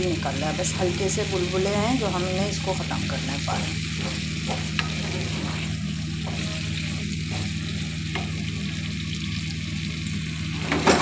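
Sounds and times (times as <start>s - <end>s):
curry sizzling and bubbling in oil: 0.0s - 11.0s
steady low hum: 0.0s - 11.0s
spatula scraping a pan: 3.5s - 7.9s.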